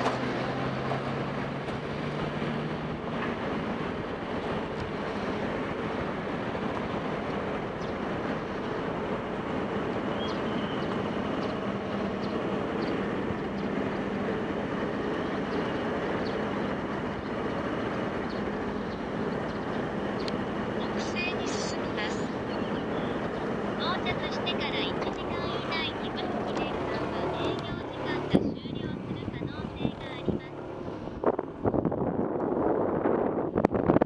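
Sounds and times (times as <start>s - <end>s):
road and wind noise: 0.0s - 34.0s.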